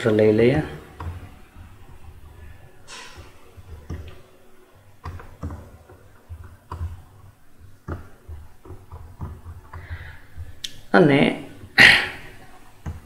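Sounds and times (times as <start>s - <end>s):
computer mouse clicking: 0.7s - 4.3s, 5.0s - 10.9s, 12.3s - 13.0s.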